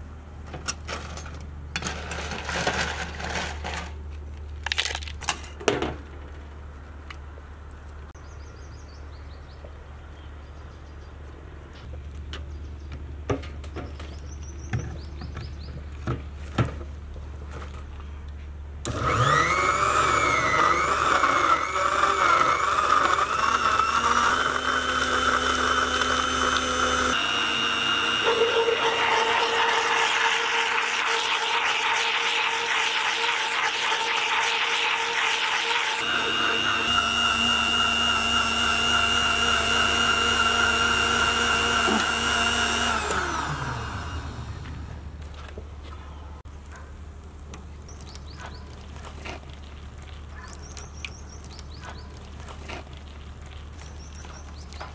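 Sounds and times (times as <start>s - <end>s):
mixer grinder whining: 18.9s - 45.2s.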